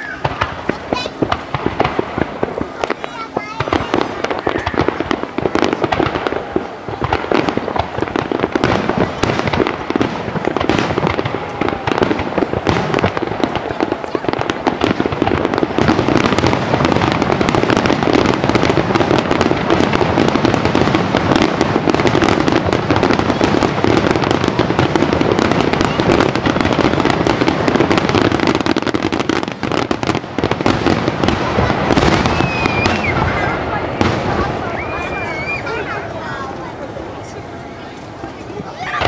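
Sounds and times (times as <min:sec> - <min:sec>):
firework crackling: 0:00.0 - 0:39.0
firework shells bursting: 0:00.0 - 0:39.0.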